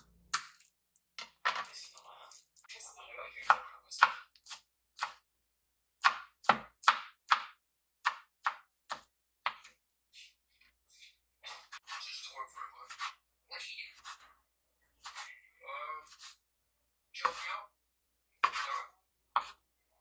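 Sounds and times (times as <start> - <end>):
knife chopping on cutting board: 3.4 - 5.2, 6.0 - 9.8, 12.8 - 13.2, 15.0 - 15.3, 18.4 - 18.8, 19.4 - 19.6.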